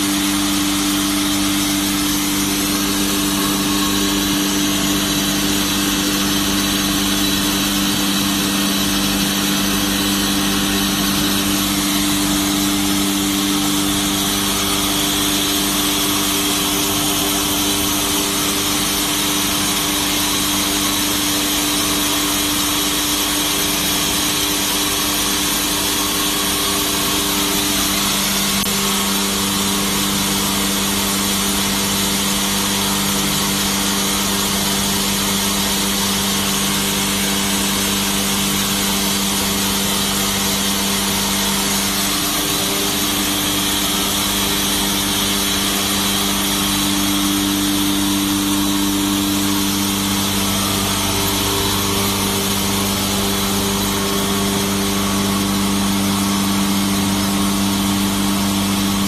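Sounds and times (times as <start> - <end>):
band saw cutting: 0.0 - 59.0.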